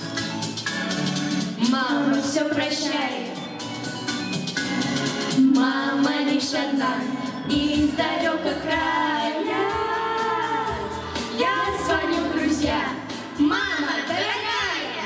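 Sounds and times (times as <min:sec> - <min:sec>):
children's choir singing: 0:05.4 - 0:13.2.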